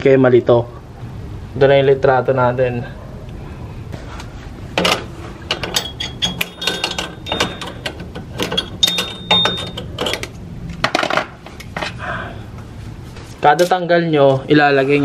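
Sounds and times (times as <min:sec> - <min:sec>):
high metallic ring: 0:08.5 - 0:10.1.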